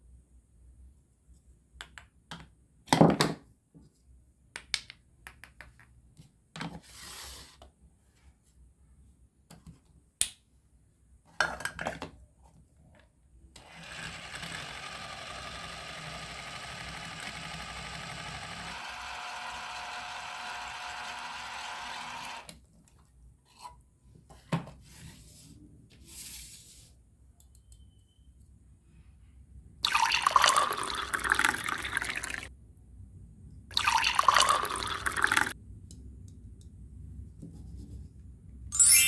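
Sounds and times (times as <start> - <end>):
toy mixer motor running: 13.6 - 22.5.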